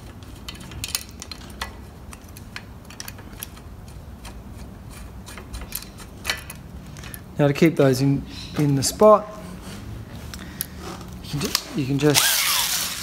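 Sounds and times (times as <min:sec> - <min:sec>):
metallic clicks of bolts and washers: 0:00.0 - 0:07.3.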